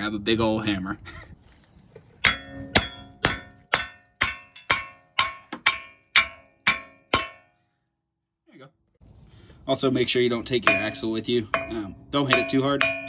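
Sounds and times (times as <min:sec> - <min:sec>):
hammer striking metal hub: 0:02.2 - 0:07.6, 0:10.5 - 0:13.0.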